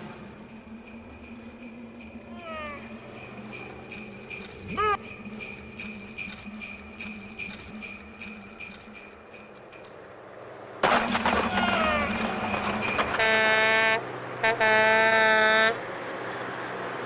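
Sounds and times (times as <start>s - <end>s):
sleigh bells jingling: 0.0s - 10.2s, 10.8s - 14.0s.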